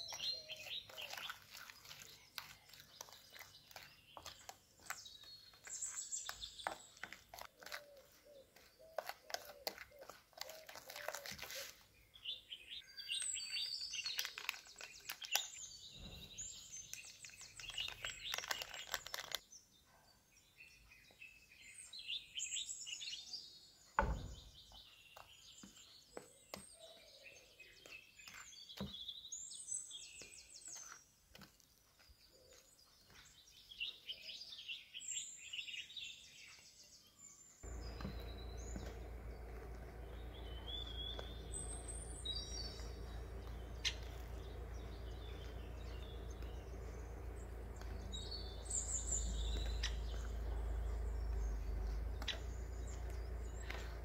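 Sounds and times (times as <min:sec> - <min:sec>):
spoon stirring dough in bowl: 0:00.0 - 0:11.6
birds chirping: 0:00.0 - 0:54.0
low thump: 0:24.0 - 0:24.5.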